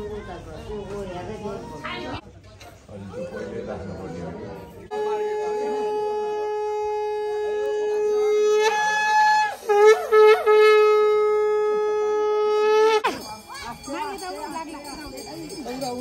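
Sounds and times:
brass horn blown: 0:04.9 - 0:13.1.

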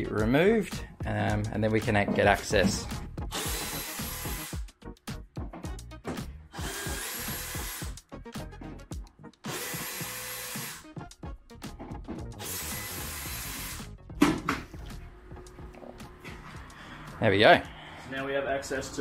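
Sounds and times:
cordless drill motor: 0:03.3 - 0:04.5, 0:06.6 - 0:08.0, 0:09.5 - 0:10.8, 0:12.4 - 0:13.9.

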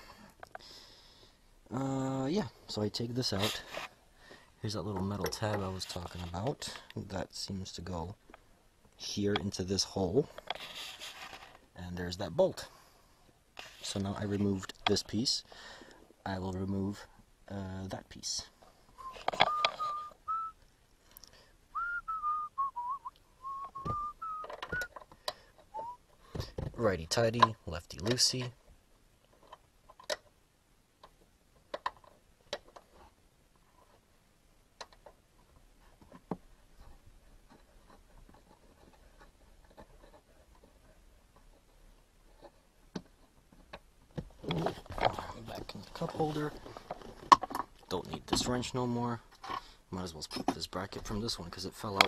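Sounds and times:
man whistling a tune: 0:19.0 - 0:20.6, 0:21.7 - 0:24.9, 0:25.7 - 0:26.0.

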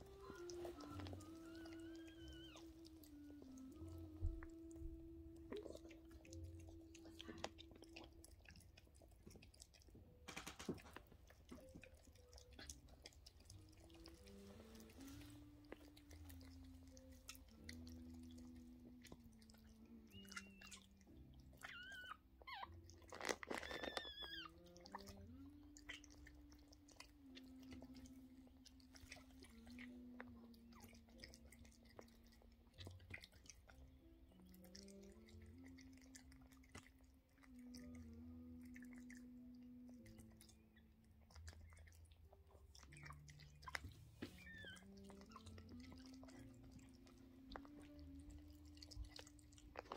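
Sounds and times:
puppy squeaks: 0:00.0 - 0:04.4, 0:20.0 - 0:20.9, 0:21.5 - 0:25.1, 0:42.9 - 0:46.3
soft low tone: 0:00.0 - 0:09.0, 0:11.6 - 0:22.9, 0:23.8 - 0:32.9, 0:33.6 - 0:49.9
dog licking and nibbling: 0:00.0 - 0:49.9.

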